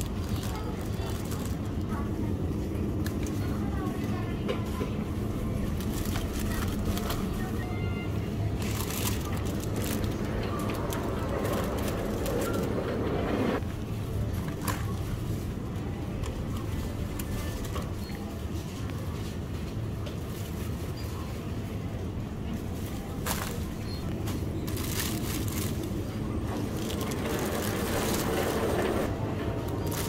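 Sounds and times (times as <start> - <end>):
produce rustling in plastic basket: 0.0 - 2.1, 5.5 - 12.7, 22.7 - 28.9, 29.7 - 30.0
low hum and rumble: 0.0 - 30.0.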